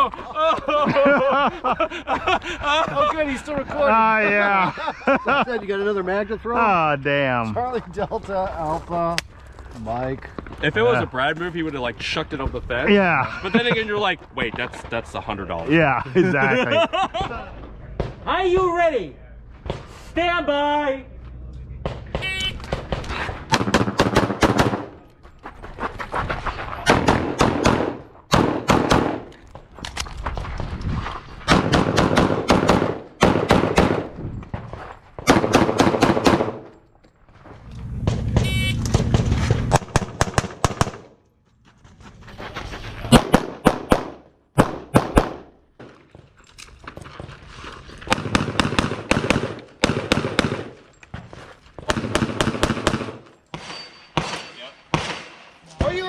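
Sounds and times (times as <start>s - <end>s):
pistol shots: 22.1s - 24.9s, 26.8s - 29.3s, 31.5s - 34.1s, 35.2s - 36.7s, 38.4s - 41.1s, 43.1s - 45.5s, 48.1s - 50.8s, 51.9s - 55.5s.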